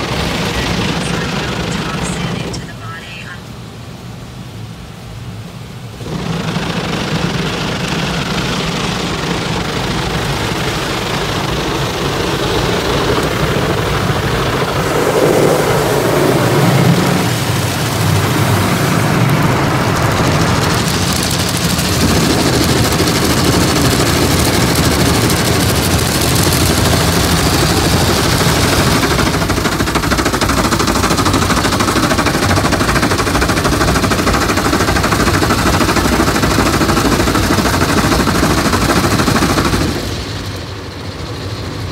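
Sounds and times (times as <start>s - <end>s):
car wash brushes slapping: 13.9s - 40.0s
water spraying on glass: 16.5s - 28.7s.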